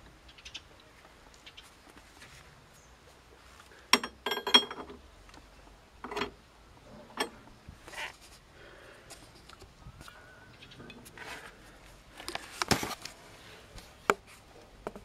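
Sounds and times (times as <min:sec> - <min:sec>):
wrench clinking on metal nut: 0:04.0 - 0:05.0, 0:06.0 - 0:06.4.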